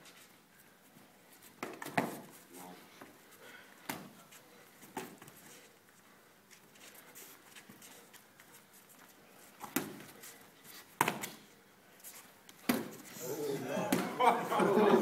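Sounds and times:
boxing gloves slapping pads: 9.6 - 10.1, 11.0 - 11.4, 12.6 - 13.0.

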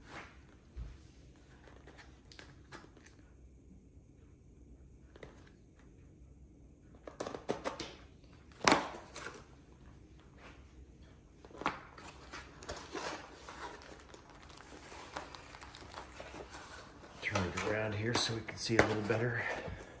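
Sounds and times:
packing rustling: 11.5 - 18.0.

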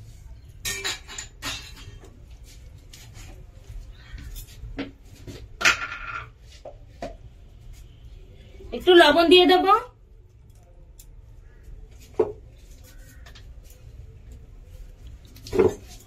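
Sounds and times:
kitchen utensils clattering: 0.6 - 2.2, 5.6 - 6.4.

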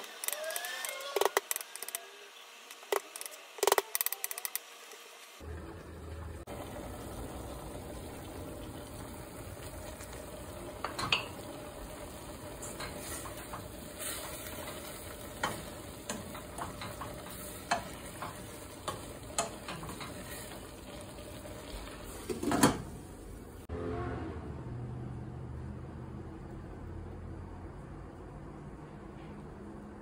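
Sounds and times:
chicken sizzling in a frying pan: 4.4 - 23.3.

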